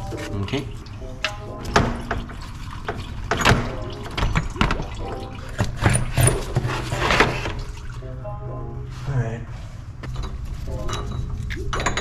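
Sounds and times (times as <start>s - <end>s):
metal parts knocking and clinking: 10.1s - 12.0s.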